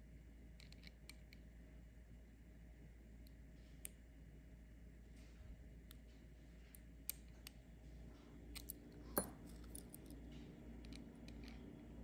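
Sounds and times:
metallic clink of tools: 0:09.2 - 0:10.0.

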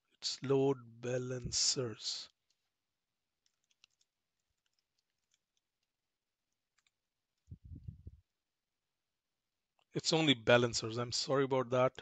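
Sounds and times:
keyboard typing: 0:03.4 - 0:07.6.

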